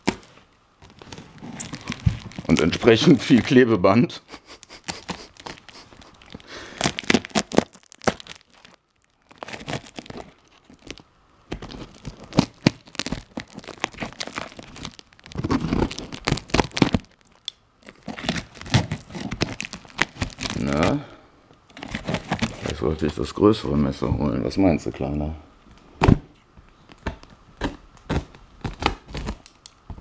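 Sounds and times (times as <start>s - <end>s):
packing tape tearing: 0.0s - 3.6s, 4.4s - 21.0s, 21.7s - 22.9s, 27.6s - 29.8s.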